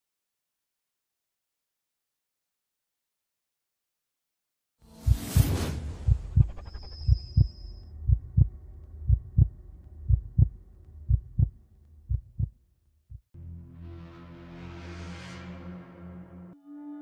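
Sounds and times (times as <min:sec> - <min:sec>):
low hum: 0:04.9 - 0:12.6
heartbeat thumps: 0:05.1 - 0:07.5, 0:08.1 - 0:08.5, 0:09.1 - 0:13.3.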